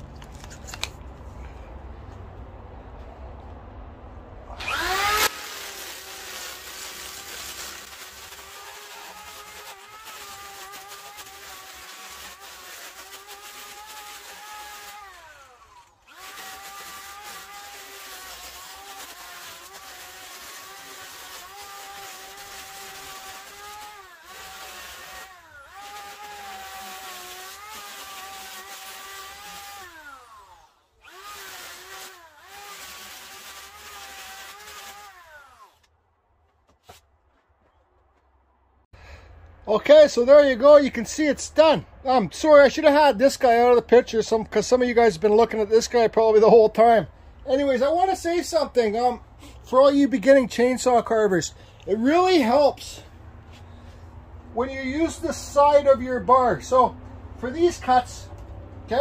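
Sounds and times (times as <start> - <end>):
angle grinder sanding wood: 4.6 - 35.8.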